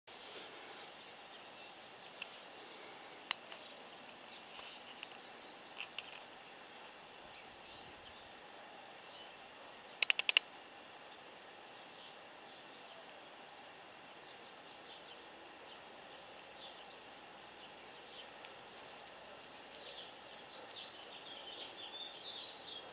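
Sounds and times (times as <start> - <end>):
faint hiss: 0.1 - 22.9
sharp high clicks: 10.0 - 10.5, 18.4 - 22.9.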